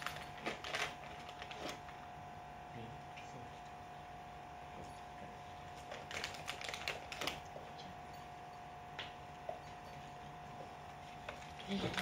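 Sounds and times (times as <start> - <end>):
packet crinkling and clicking: 0.0 - 2.0, 5.8 - 7.5
faint steady hum: 0.0 - 12.0.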